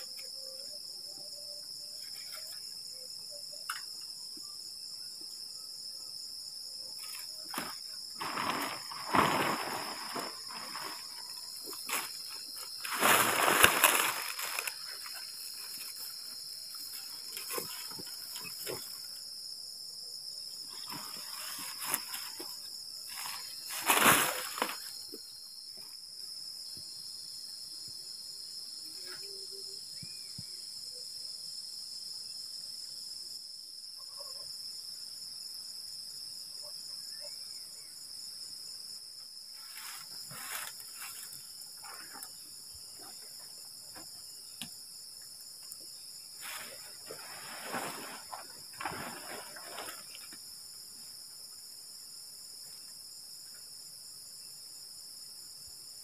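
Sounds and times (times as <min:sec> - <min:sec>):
night insects chorus: 0:00.0 - 0:56.0
tent fabric and poles rustling: 0:07.0 - 0:19.2, 0:20.6 - 0:25.2, 0:39.5 - 0:45.0, 0:45.9 - 0:51.3.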